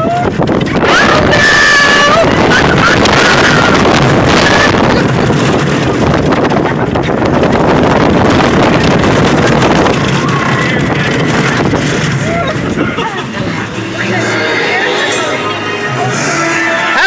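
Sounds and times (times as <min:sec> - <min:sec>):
wind buffeting microphone: 0:00.0 - 0:15.2
roller coaster rumbling on track: 0:00.0 - 0:17.0.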